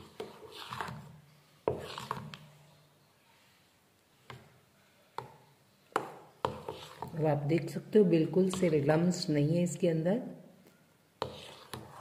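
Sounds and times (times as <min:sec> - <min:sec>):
spoon scraping steel bowl: 0:00.0 - 0:01.1, 0:01.7 - 0:02.4, 0:06.5 - 0:09.3, 0:11.2 - 0:12.0.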